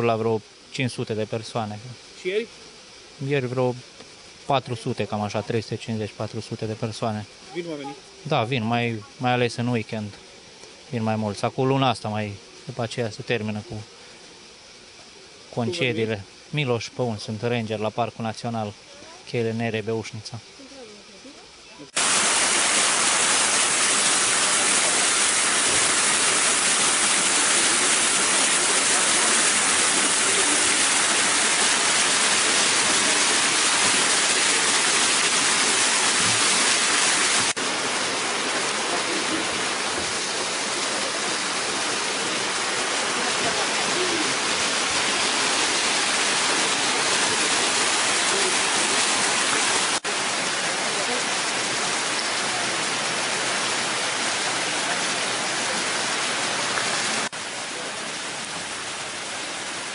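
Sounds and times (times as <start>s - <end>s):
waterfall rushing: 21.9s - 59.9s.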